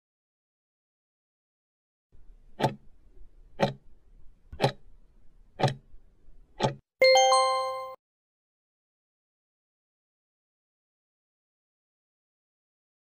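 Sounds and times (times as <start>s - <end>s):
clock ticks: 2.6s - 2.8s, 3.6s - 3.8s, 4.6s - 4.8s, 5.6s - 5.8s, 6.6s - 6.8s
ringing chime: 7.0s - 8.0s.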